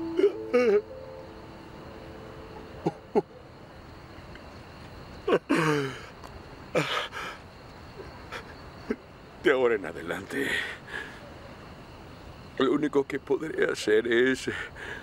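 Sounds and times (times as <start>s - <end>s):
man sobbing: 0.1s - 0.9s.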